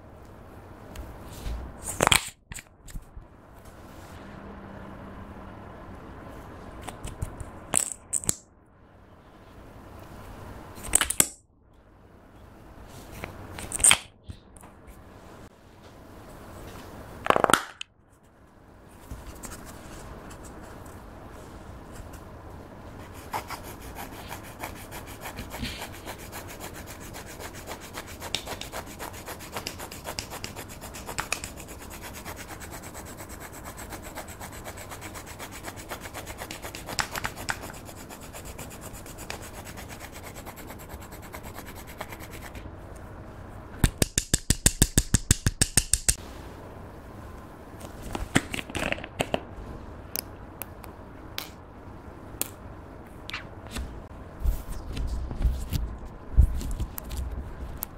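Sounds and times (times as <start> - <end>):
stick scraping eyeshadow powder: 23.3 - 42.6.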